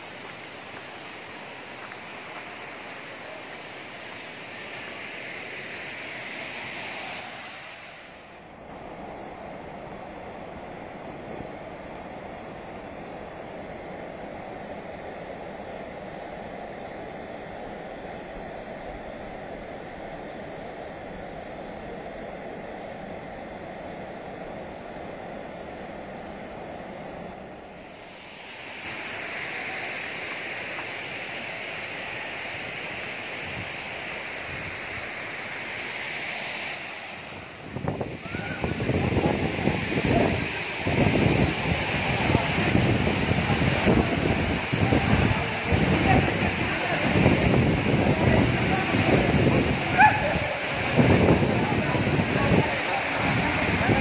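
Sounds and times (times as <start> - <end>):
waterfall rushing: 0.0 - 8.4, 27.8 - 54.0.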